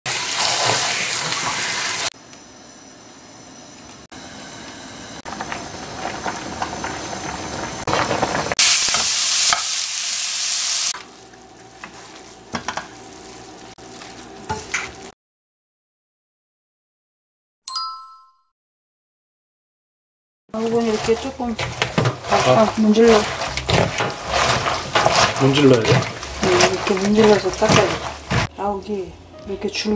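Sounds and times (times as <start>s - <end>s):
tap water running: 0.1s - 2.1s
vegetables sizzling in pan: 0.1s - 2.1s, 5.3s - 15.1s, 20.6s - 28.5s
spatula scraping pan: 11.0s - 15.1s, 20.6s - 28.5s.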